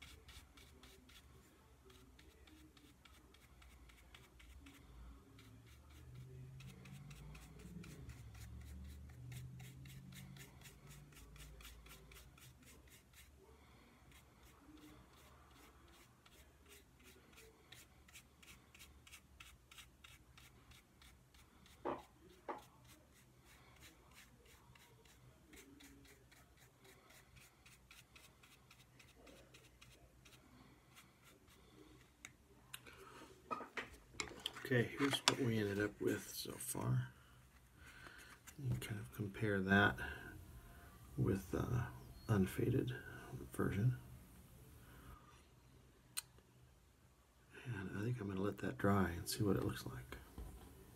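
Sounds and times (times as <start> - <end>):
paintbrush scratching on wood: 0.0 - 13.5, 14.1 - 31.9, 34.4 - 36.9.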